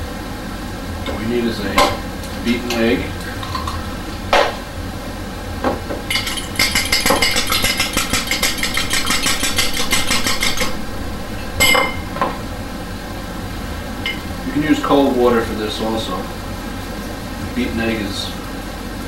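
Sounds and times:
utensil clinking against glass: 6.1 - 10.7.

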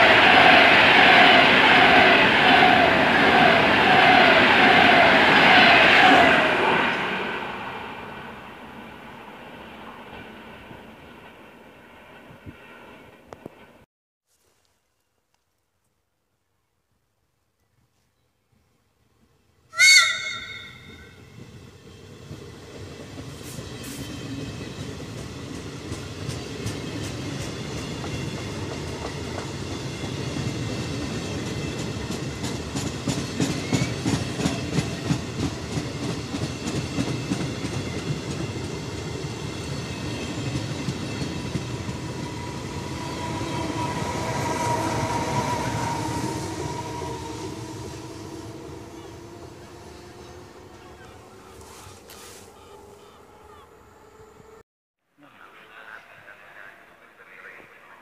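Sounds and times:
train rumbling past: 0.0 - 13.9, 19.8 - 54.6
train whine: 0.0 - 13.9, 19.8 - 54.6
train horn blast: 42.4 - 53.6.

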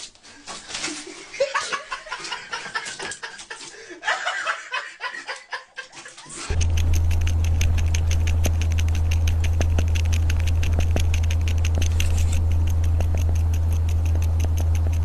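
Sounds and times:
cat purring: 6.5 - 15.0
cat sucking on pacifier clicks: 6.5 - 15.0.

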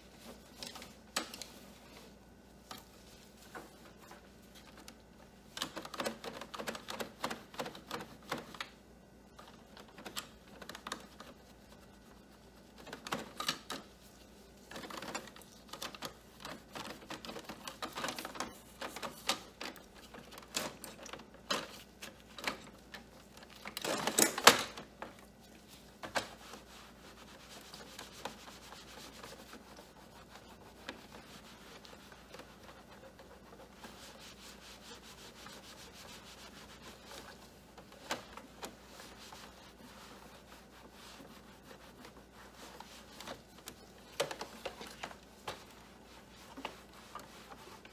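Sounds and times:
cloth rubbing on plastic: 9.2 - 23.7, 24.8 - 47.9.

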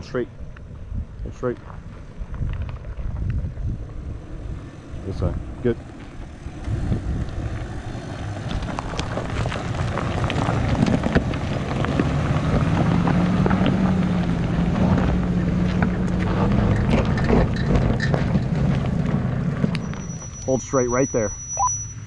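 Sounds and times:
suv engine droning: 0.0 - 22.0
tyres crunching over gravel: 1.4 - 21.5.

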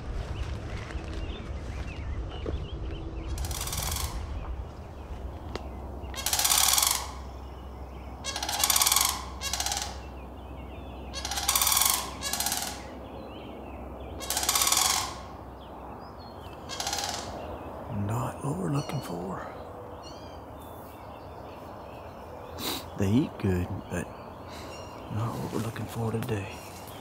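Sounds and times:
cranes calling: 3.2 - 13.3, 14.0 - 17.8, 22.5 - 27.0.

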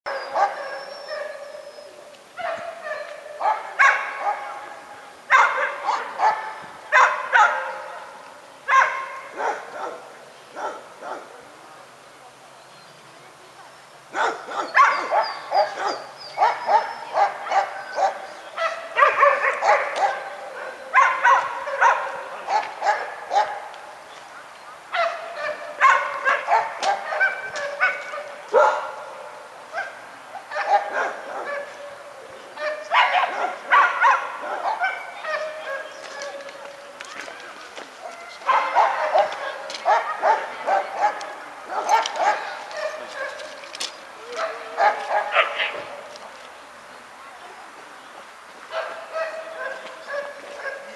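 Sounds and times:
dog barking: 0.1 - 1.6, 2.4 - 11.4, 14.1 - 23.7, 24.9 - 32.0, 32.6 - 36.5, 38.0 - 43.5, 44.3 - 46.1, 48.7 - 50.9.

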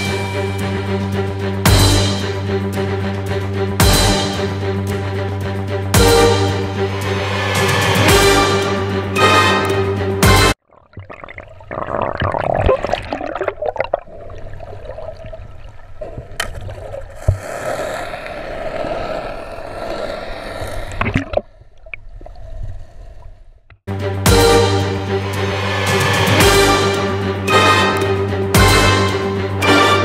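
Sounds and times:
water sloshing and gurgling underwater: 10.6 - 17.8, 20.8 - 23.8.

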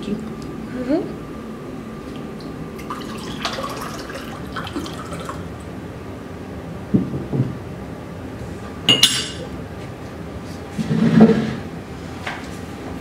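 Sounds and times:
liquid pouring into a glass: 2.8 - 5.5
glassware knocking on table: 7.0 - 7.6.

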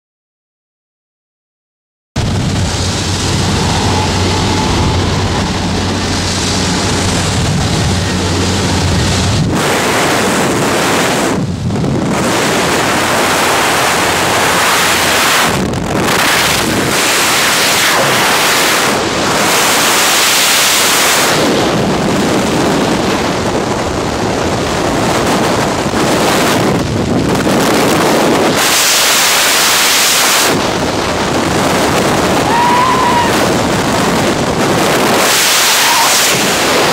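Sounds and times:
plane engine droning: 2.2 - 28.7
wind buffeting microphone: 2.2 - 36.9
wind rushing: 2.2 - 36.9.

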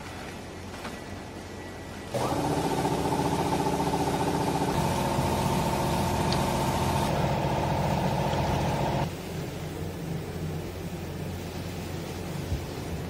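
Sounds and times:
electric motor and pump humming: 2.1 - 13.0.

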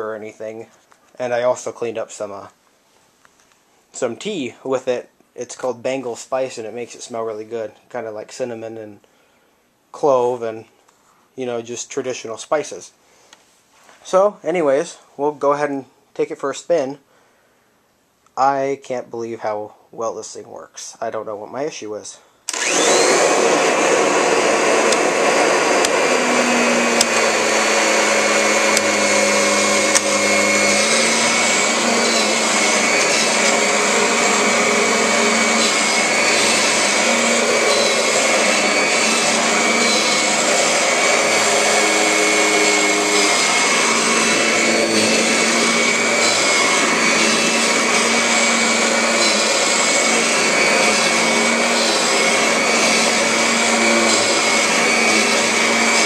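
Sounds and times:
vacuum cleaner running over carpet: 22.5 - 56.0.

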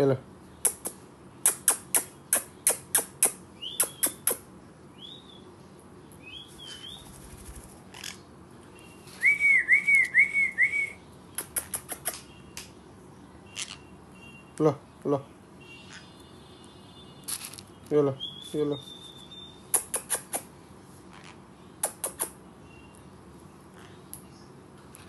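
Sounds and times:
parrots chirping: 0.6 - 5.5, 6.2 - 12.6, 13.4 - 14.4, 15.6 - 16.3, 18.2 - 23.0.

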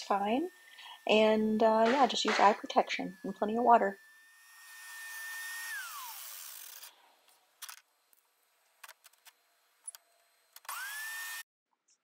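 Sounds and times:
tile saw motor winding down: 0.0 - 7.0, 8.9 - 11.4.

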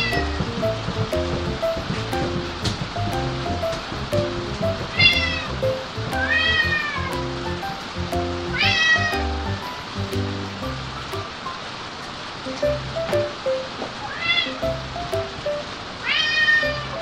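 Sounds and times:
background music: 0.0 - 11.5, 12.5 - 13.8, 14.6 - 15.8
cat meowing: 4.9 - 5.5, 6.2 - 7.2, 8.5 - 9.2, 14.0 - 14.6, 16.0 - 17.0.

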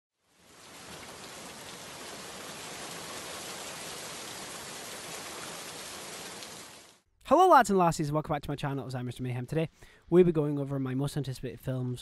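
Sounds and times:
steady rain: 0.2 - 7.0.

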